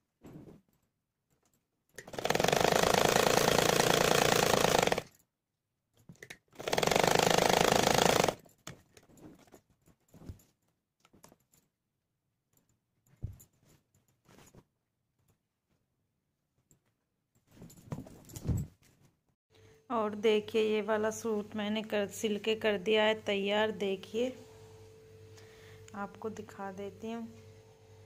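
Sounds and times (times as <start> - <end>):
sewing machine stitching: 2.0 - 5.1, 6.6 - 8.4.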